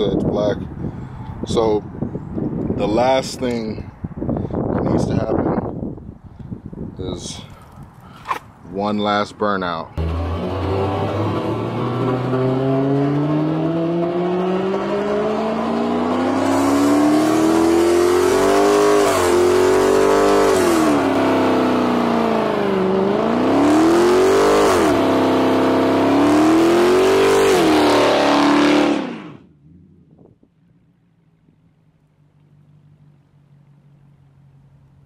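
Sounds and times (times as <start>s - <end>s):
car engine revving: 10.0s - 33.2s.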